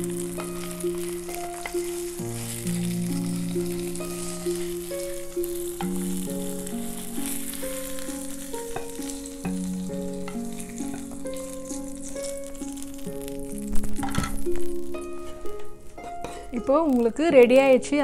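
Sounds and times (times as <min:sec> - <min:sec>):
frying pan sizzling: 0:00.0 - 0:18.0
slow background music: 0:00.0 - 0:18.0.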